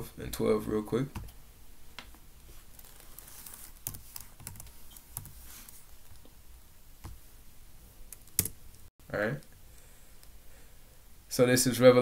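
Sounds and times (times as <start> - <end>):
computer keyboard keystrokes: 3.8 - 5.4, 8.1 - 8.6.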